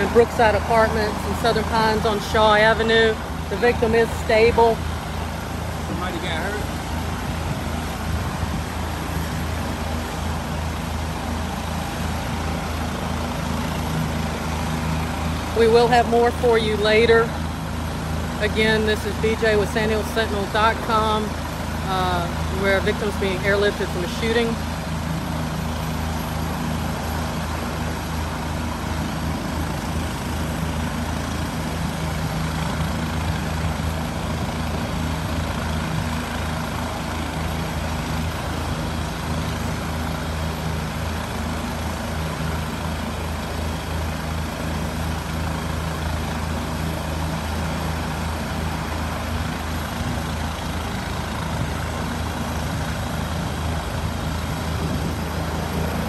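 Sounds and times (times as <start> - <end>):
helicopter turbine and rotor running: 0.0 - 56.0.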